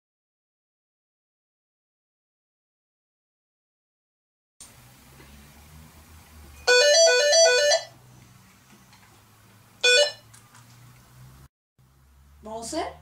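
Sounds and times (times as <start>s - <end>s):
phone ringtone melody: 6.6s - 8.0s, 9.8s - 10.3s.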